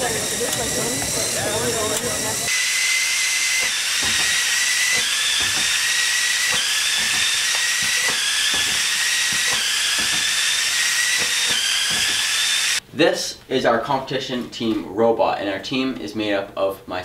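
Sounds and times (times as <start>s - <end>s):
flywheel motor whine: 0.0s - 12.8s.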